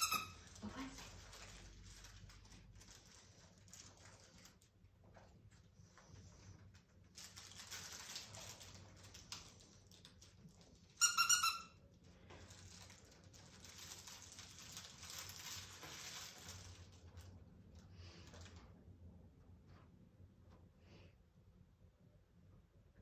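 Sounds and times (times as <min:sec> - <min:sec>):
puppy squeak: 0:00.0 - 0:00.4, 0:11.0 - 0:11.8
puppy scrambling on plastic tarp: 0:12.3 - 0:17.3.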